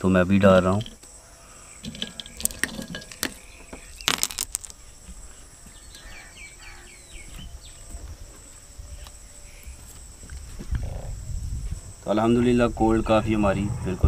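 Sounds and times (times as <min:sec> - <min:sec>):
high insect hum: 0:00.0 - 0:14.0
bird chirping falling calls: 0:01.1 - 0:07.9.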